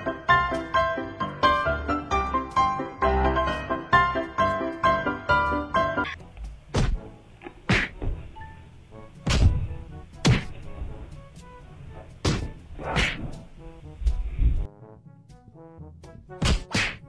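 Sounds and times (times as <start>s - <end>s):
piano music: 0.0s - 6.3s
whack sound effects: 10.2s - 10.5s, 12.2s - 13.2s, 16.4s - 17.0s.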